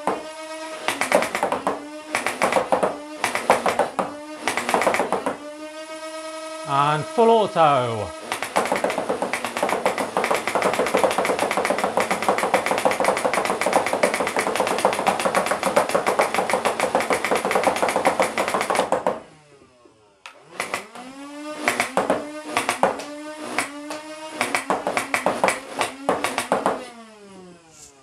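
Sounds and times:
foam blaster firing shots: 0.8 - 5.5, 8.2 - 19.0, 21.6 - 26.9.

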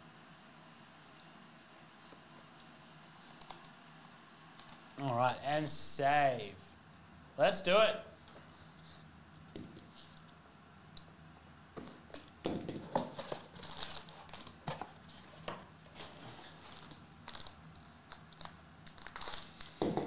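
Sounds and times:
plastic foil pouch crinkling: 13.5 - 14.6, 16.5 - 19.8.

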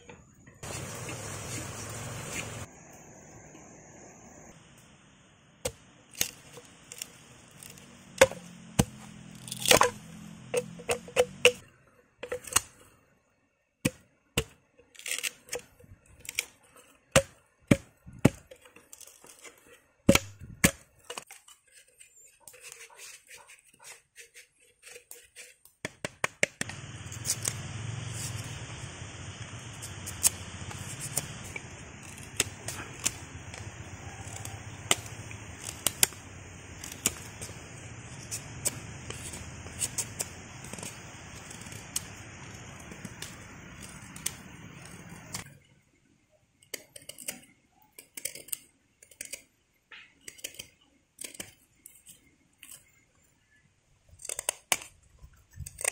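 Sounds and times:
steady hiss: 0.6 - 9.3, 26.6 - 45.4
machete chopping bamboo: 5.6 - 12.8, 13.8 - 19.4, 20.1 - 21.4, 25.2 - 28.6, 29.8 - 45.5, 54.2 - 55.0
bamboo fibres tearing: 5.7 - 13.0, 13.8 - 25.7, 26.3 - 45.5, 46.7 - 53.5, 54.1 - 55.9.

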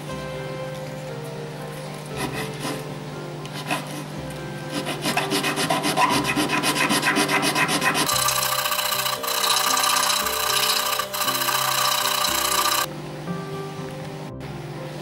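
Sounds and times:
sandpaper sanding wood: 2.2 - 2.8, 3.5 - 4.1, 4.7 - 8.2.

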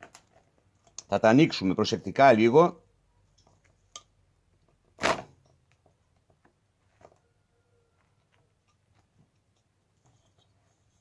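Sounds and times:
faint clicks of parts: 3.2 - 7.3, 8.0 - 11.0.

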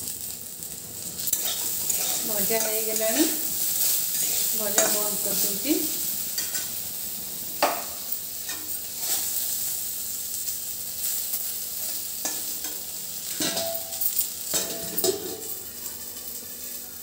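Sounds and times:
eggplant sizzling in oil: 0.0 - 17.0
metal spatula scraping pan: 1.3 - 3.2, 8.4 - 9.4.

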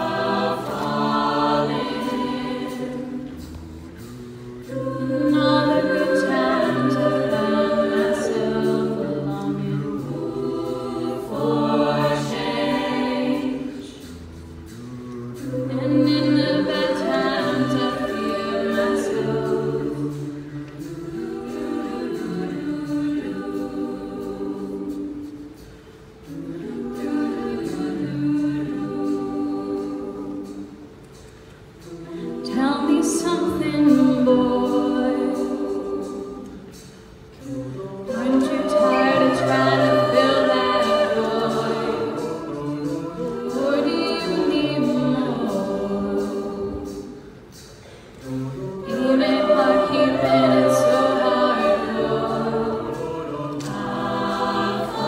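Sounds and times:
a cappella group singing: 0.0 - 55.0.

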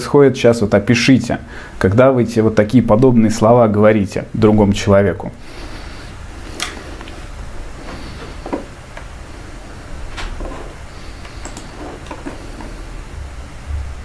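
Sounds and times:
low room hum: 0.0 - 14.0
faint clicks and knocks: 10.1 - 12.8.

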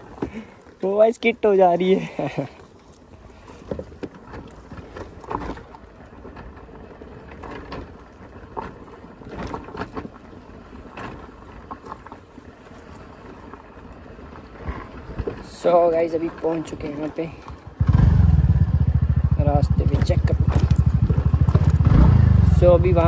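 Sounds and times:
tyres crunching on dirt: 0.0 - 23.0
low rumble on microphone: 17.9 - 23.0
knocks and rattles from bumps: 19.4 - 22.0.

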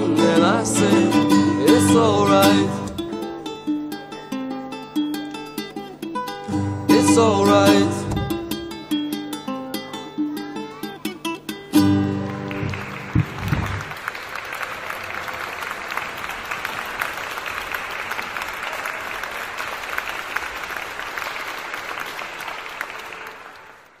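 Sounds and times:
ukulele playing: 0.0 - 14.0
audience applauding: 11.9 - 24.0.

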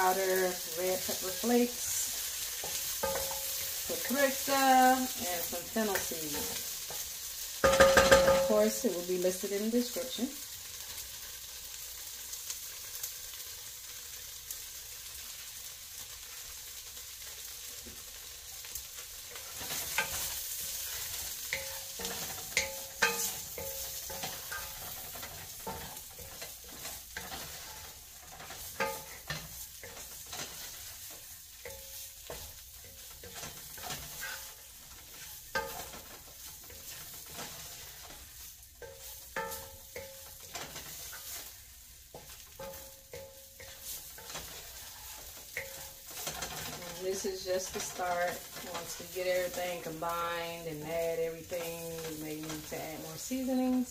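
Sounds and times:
food sizzling in oil: 0.0 - 53.9
wooden spoon scraping pot: 19.4 - 53.7.

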